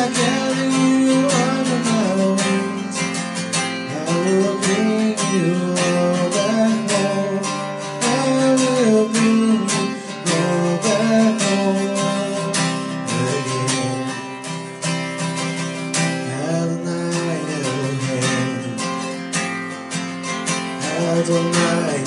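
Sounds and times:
acoustic guitar strumming chords: 0.0s - 22.0s.

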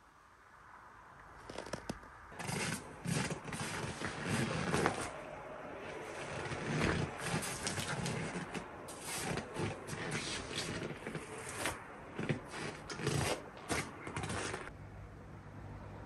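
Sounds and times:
footsteps crunching in snow: 1.4s - 5.2s, 5.8s - 14.7s.

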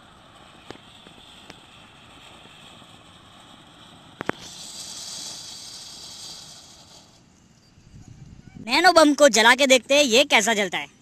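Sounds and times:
fountain firework hissing: 0.0s - 8.0s.

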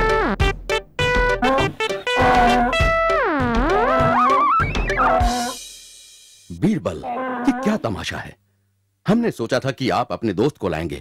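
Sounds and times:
playful brass music: 0.0s - 5.7s.

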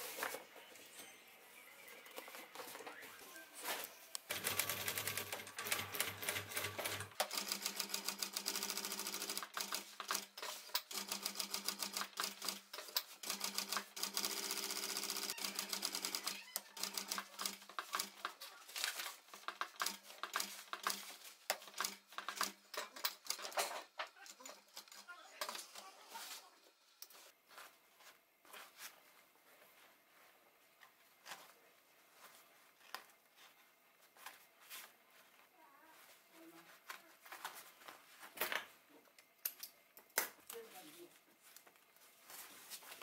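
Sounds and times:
sewing machine stitching: 4.3s - 18.3s.

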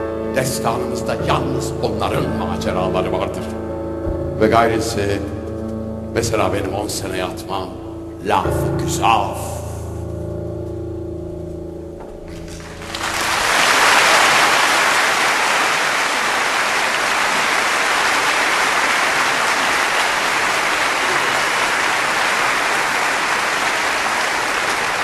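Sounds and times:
audience applause: 12.3s - 25.0s.

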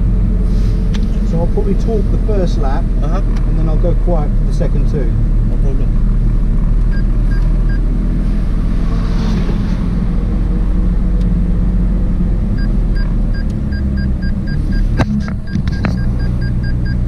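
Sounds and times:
car engine low rumble: 0.0s - 17.0s
short electronic beeps: 12.6s - 17.0s.

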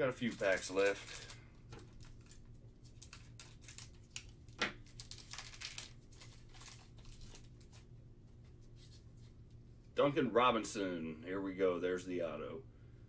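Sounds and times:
foil wrapper crinkling and tearing: 0.1s - 7.8s.

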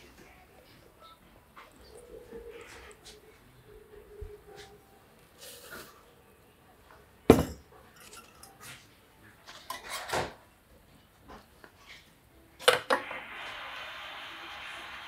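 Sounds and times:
metal and glass clattering: 7.3s - 8.6s
steady hiss: 12.9s - 15.0s.

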